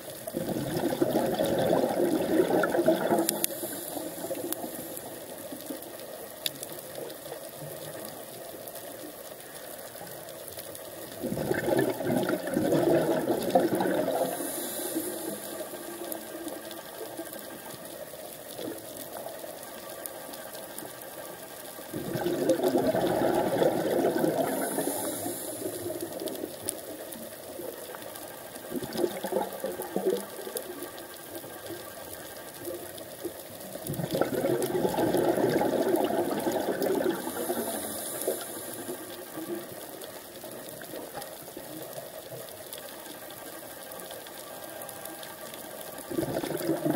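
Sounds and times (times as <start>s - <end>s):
soft crackles: 0.0s - 46.9s
exhaled bubbles rushing: 0.3s - 5.1s, 11.1s - 16.3s, 21.9s - 26.8s, 28.6s - 30.8s, 33.8s - 40.0s, 46.0s - 46.9s.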